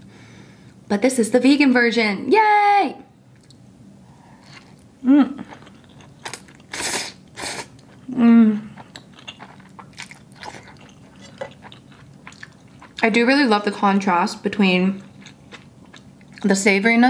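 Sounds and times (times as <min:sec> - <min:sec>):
soft chewing and mouth clicks: 0:03.3 - 0:03.6, 0:04.3 - 0:06.8, 0:08.7 - 0:13.1, 0:14.9 - 0:16.5
person humming mm: 0:05.0 - 0:05.5, 0:08.1 - 0:08.8
slurping noodles: 0:06.7 - 0:07.8.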